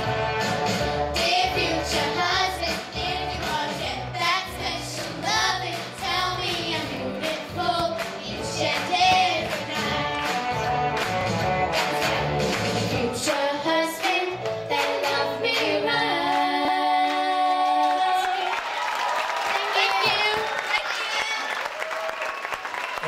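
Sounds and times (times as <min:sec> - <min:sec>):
backing track with beat: 0:00.0 - 0:13.4
girls singing pop song: 0:00.8 - 0:10.8, 0:11.7 - 0:18.6.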